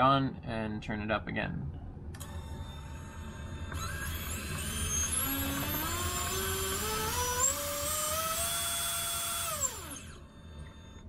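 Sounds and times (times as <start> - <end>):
electric motor whine: 2.2 - 11.0.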